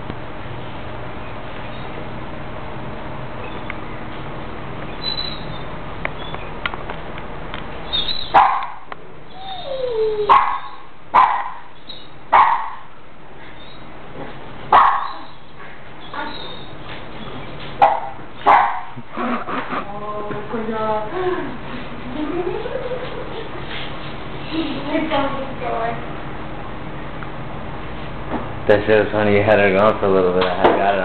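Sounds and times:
dog barking: 8.3s - 8.9s, 10.3s - 12.9s, 14.7s - 15.4s, 17.8s - 19.0s.

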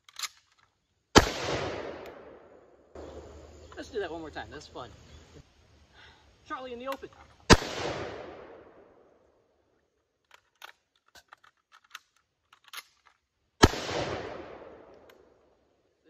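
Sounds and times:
magazine change clicks: 0.0s - 2.3s, 10.2s - 15.3s
rifle shot echoing: 1.1s - 3.7s, 7.5s - 9.2s, 13.6s - 15.4s.

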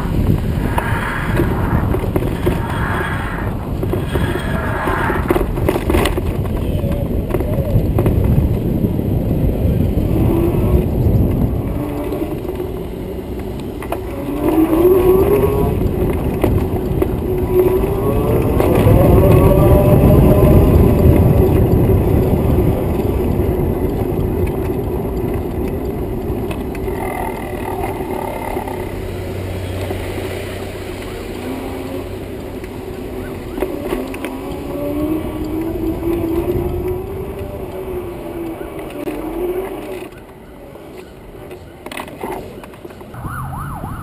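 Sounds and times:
tyre rumble: 0.0s - 8.8s
rushing wind: 0.0s - 31.0s, 43.1s - 44.0s.

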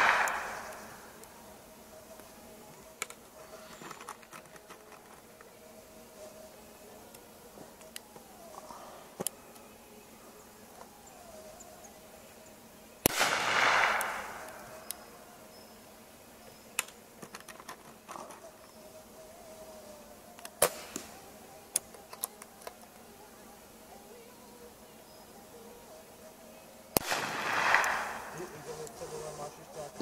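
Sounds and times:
pistol shots: 0.0s - 1.1s, 13.0s - 14.7s, 27.0s - 28.4s
faint clicks: 21.7s - 23.0s.

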